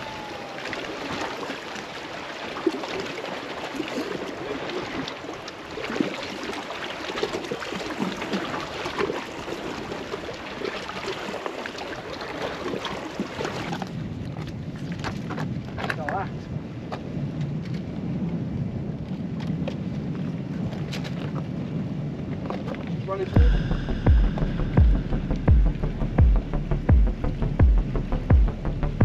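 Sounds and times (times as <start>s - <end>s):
small waves lapping: 0.0s - 16.3s.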